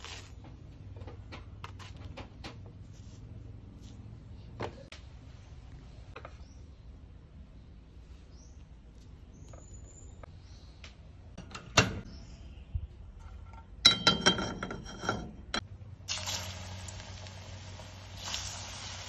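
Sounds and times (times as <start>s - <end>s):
cooking oil hissing in pan: 16.1s - 19.0s.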